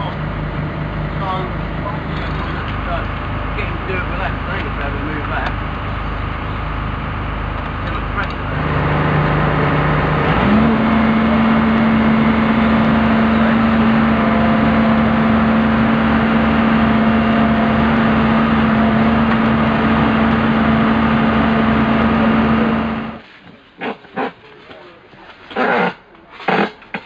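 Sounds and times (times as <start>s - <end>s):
excavator diesel engine droning: 0.0s - 23.2s.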